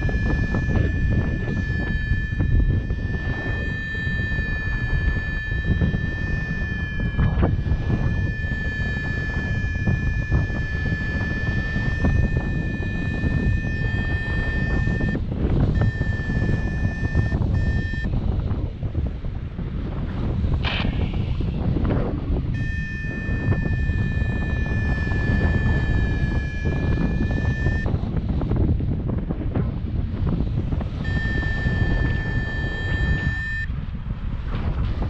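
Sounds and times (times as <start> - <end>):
continuous variometer tone: 0.0 - 35.0
wind buffeting microphone: 0.0 - 35.0.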